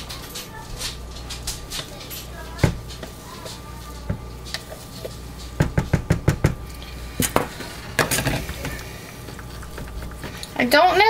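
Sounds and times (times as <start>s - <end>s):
plastic containers knocking: 5.6s - 6.6s.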